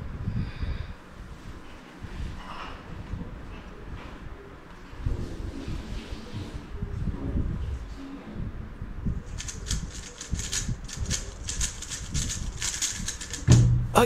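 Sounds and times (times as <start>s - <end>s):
puzzle cube plastic clicking: 9.3s - 13.4s.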